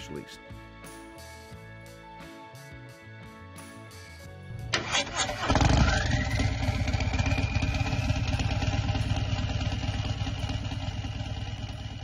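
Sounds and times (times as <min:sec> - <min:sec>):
motorcycle engine idling: 0:04.8 - 0:12.0.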